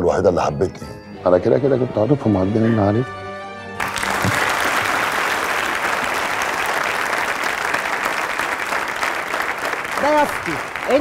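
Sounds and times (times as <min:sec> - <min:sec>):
studio audience applauding: 0:03.8 - 0:11.0.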